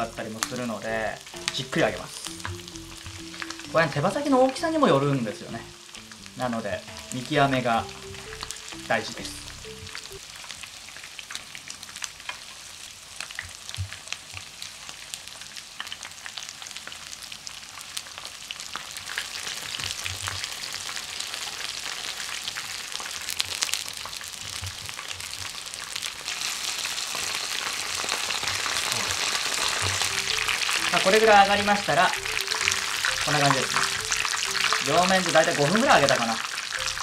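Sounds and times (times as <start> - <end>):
chicken wings frying in oil: 0.0 - 37.0.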